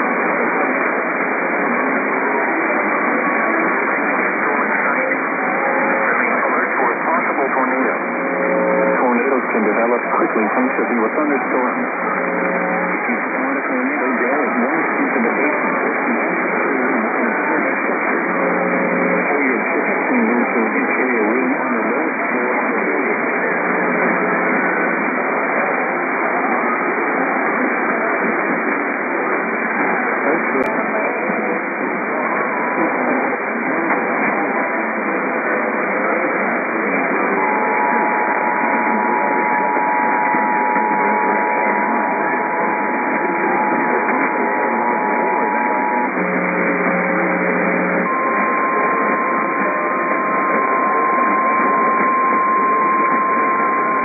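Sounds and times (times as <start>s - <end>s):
muffled voice on radio: 0.0s - 54.0s
radio static hiss: 0.0s - 54.0s
two-tone alert signal: 37.0s - 54.0s.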